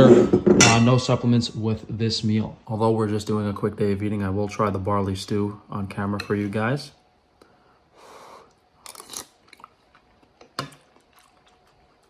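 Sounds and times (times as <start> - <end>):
wet chewing clicks: 8.8 - 12.0.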